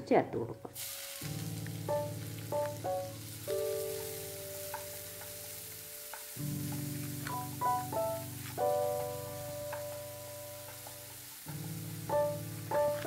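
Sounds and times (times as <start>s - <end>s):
soft keyboard music: 0.0s - 13.0s
onions sizzling in hot oil: 0.8s - 13.0s.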